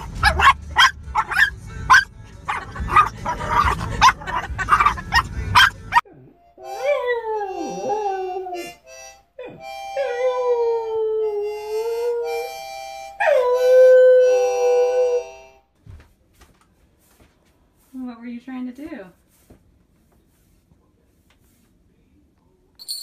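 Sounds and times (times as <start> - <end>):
dog howling: 4.7 - 8.8
harmonica chords: 4.8 - 15.7.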